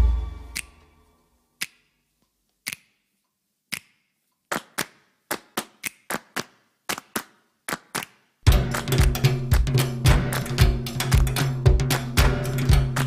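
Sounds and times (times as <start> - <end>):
sharp percussive hits: 0.0 - 0.9, 8.5 - 13.0.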